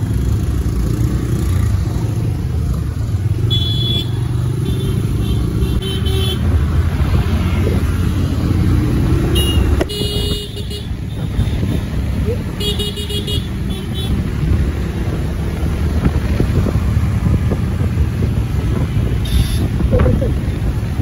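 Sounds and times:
motorcycle engine and wind rumble: 0:00.0 - 0:21.0
car horn beeps: 0:03.5 - 0:05.0, 0:09.3 - 0:11.5, 0:19.2 - 0:20.2.

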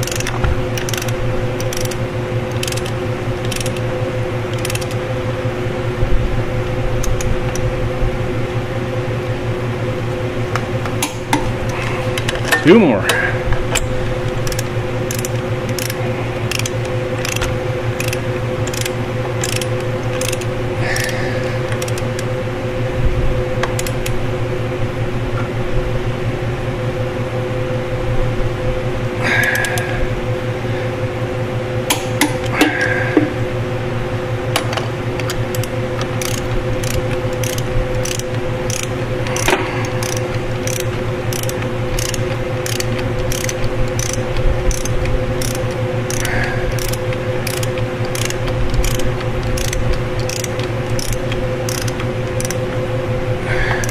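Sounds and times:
torque wrench ratchet clicking: 0:00.0 - 0:03.9, 0:04.5 - 0:05.0, 0:07.0 - 0:07.7, 0:13.7 - 0:22.3, 0:23.6 - 0:24.2, 0:34.6 - 0:52.8, 0:53.6 - 0:53.9
steady hum: 0:00.0 - 0:53.9.

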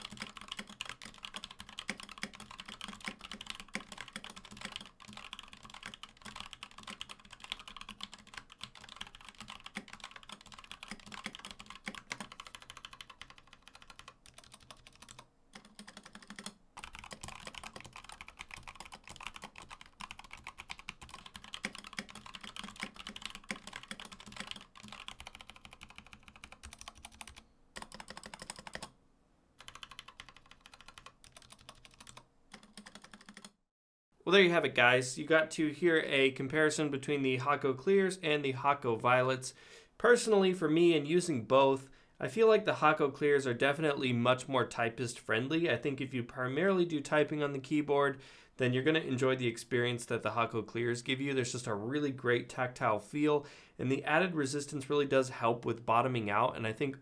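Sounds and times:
mechanical keyboard typing: 0:00.0 - 0:28.9, 0:29.6 - 0:33.6.

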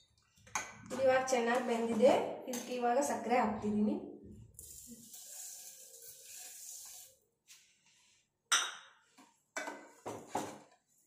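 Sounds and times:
sugar pouring into a pot: 0:04.6 - 0:07.2.

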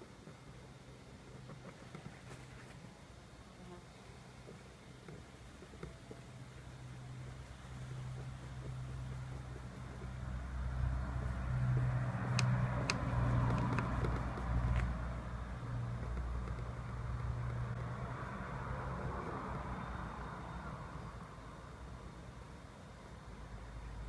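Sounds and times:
low rumble of passing vehicle: 0:02.4 - 0:24.0
sharp clicks: 0:12.2 - 0:15.0.

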